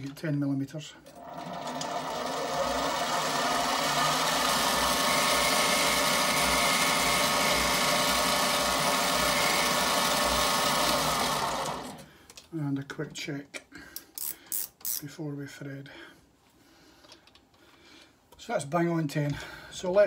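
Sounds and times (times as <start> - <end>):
lathe motor and gear whine: 1.2 - 12.0.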